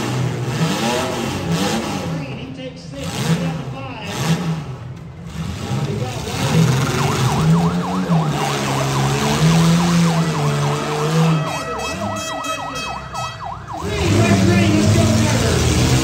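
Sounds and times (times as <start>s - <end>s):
car engines revving: 0.0s - 16.0s
siren yelping: 6.5s - 14.8s.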